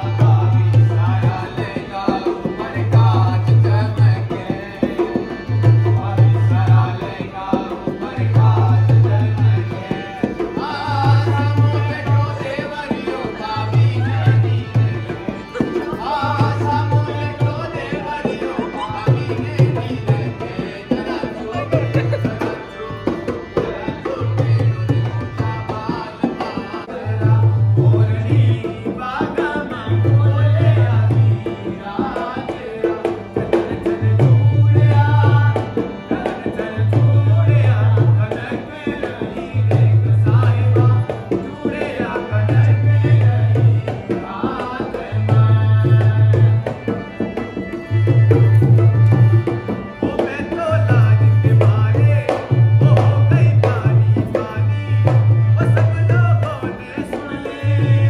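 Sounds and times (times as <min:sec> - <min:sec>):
hand drum rhythm: 0:00.0 - 0:29.6
person singing: 0:15.2 - 0:46.8.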